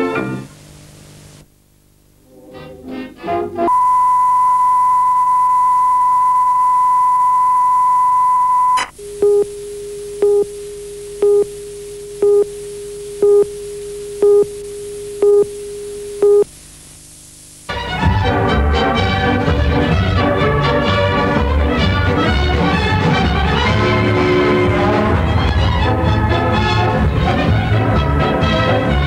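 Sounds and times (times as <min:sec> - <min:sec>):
countdown beeps: 0:03.7 - 0:09.6, 0:10.2 - 0:10.5, 0:11.2 - 0:11.5, 0:12.2 - 0:12.5, 0:13.2 - 0:13.5, 0:14.2 - 0:14.5, 0:15.2 - 0:15.5, 0:16.2 - 0:16.4
high steady test tone: 0:03.7 - 0:16.5
lower steady tone: 0:03.7 - 0:17.7.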